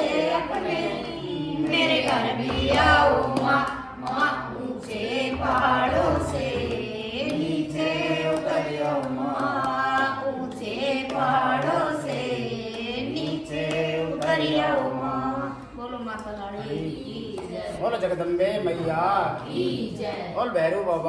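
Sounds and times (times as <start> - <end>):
group singing devotional song: 0.0 - 21.0.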